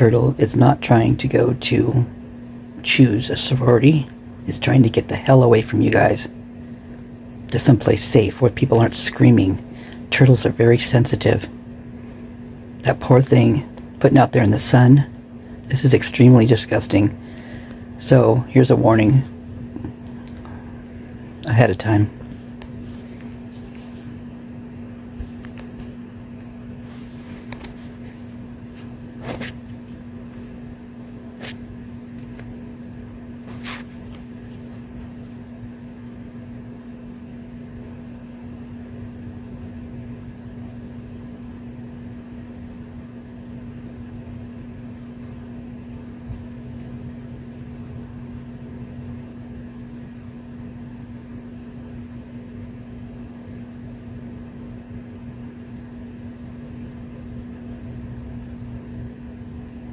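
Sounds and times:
electrical hum: 0.0 - 59.9.

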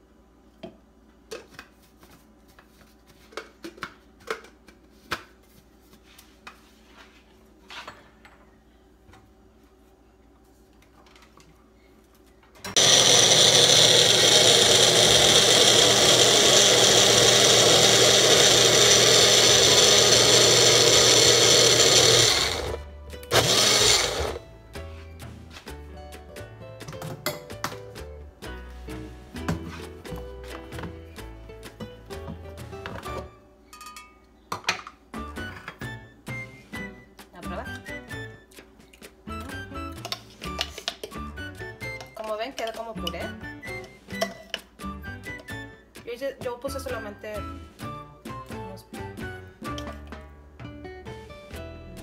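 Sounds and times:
blender running: 12.8 - 24.4.

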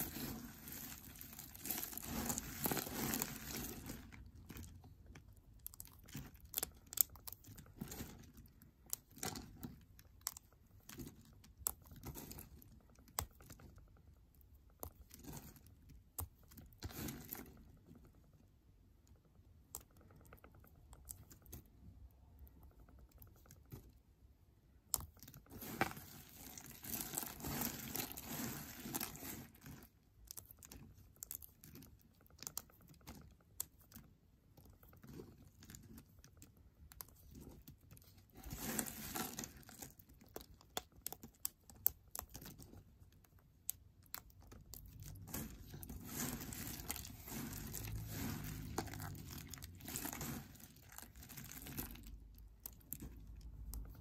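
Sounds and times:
soap shavings crunching: 0.0 - 13.8, 24.9 - 54.0.

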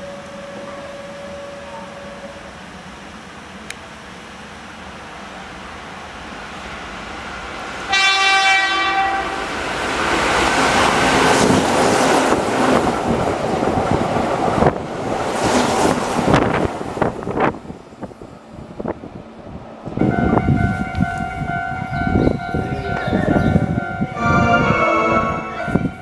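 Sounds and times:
train horn: 7.9 - 9.5, 24.1 - 26.0
electric train passing: 23.9 - 26.0.

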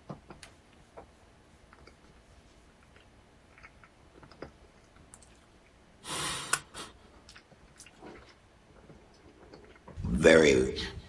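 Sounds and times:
lip and tongue clicks: 2.8 - 5.8, 6.5 - 8.4.

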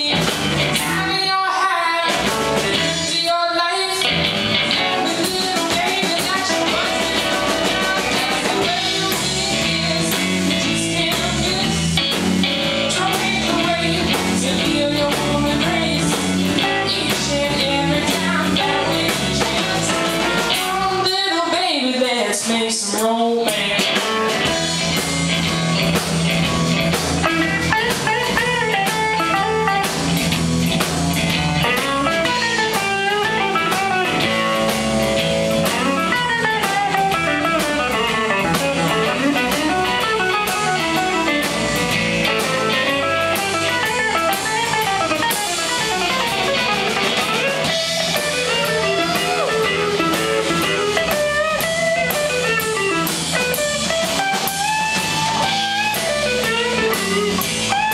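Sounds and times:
bass guitar: 0.0 - 57.9
drum kit: 0.0 - 57.9
electric guitar solo: 23.8 - 57.9.

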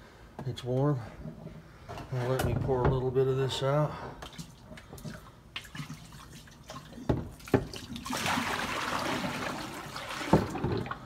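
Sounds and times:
water pouring from container: 4.3 - 11.0.

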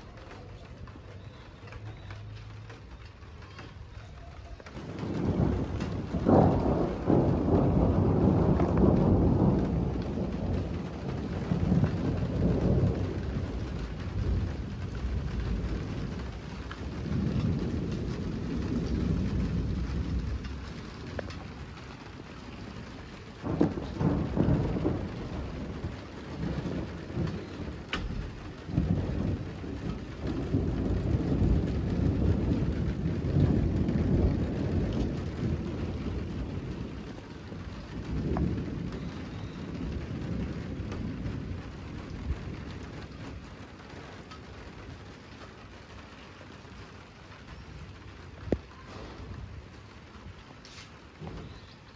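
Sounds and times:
rain falling: 0.0 - 51.9
thunder rumbling: 0.0 - 51.9.

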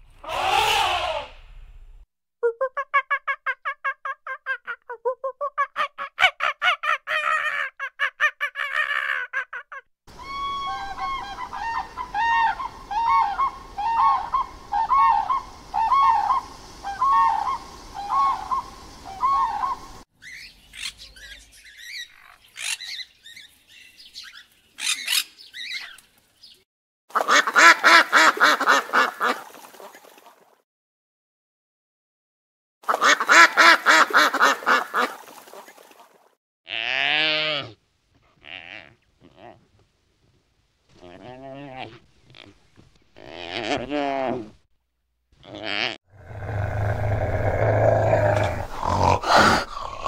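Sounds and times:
crane trumpeting calls: 0.2 - 1.4.

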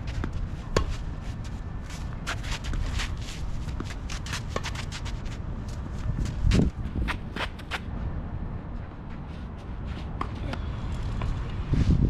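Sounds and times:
shoes scuffing on court: 0.0 - 7.8.

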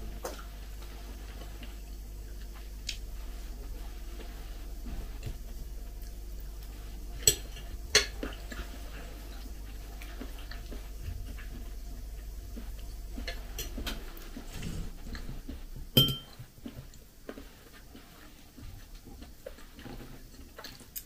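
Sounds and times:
low hum: 0.0 - 16.4
knife clinking on ceramic plate: 16.0 - 16.4.

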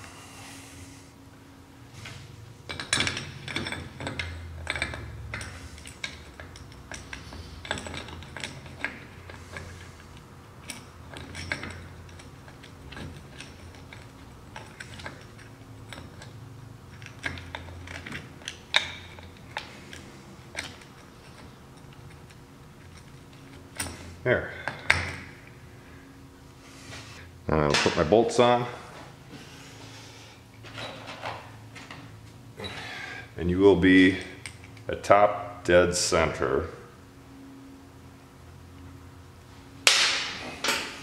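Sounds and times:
metallic clinks of engine parts: 2.7 - 25.3.

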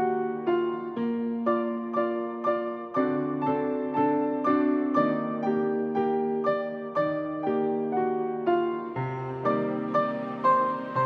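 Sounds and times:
soft piano melody: 0.0 - 11.0.

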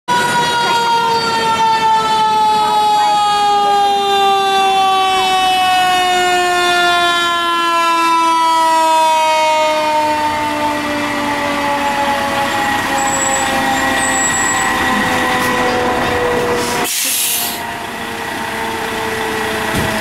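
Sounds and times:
fire engine siren wailing: 0.1 - 20.0.

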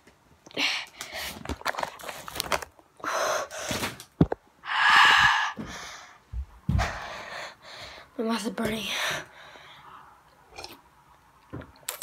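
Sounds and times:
boy gasping and huffing: 4.6 - 8.1.

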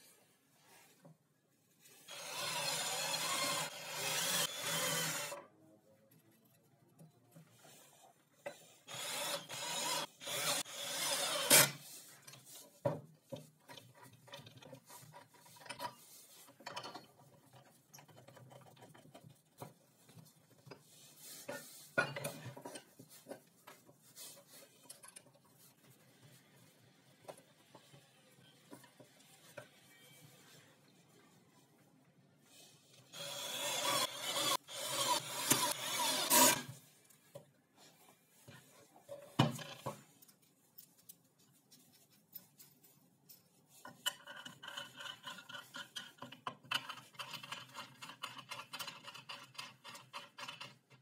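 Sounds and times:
cordless drill boring into plywood: 2.1 - 5.4, 8.9 - 11.8, 33.2 - 36.7.

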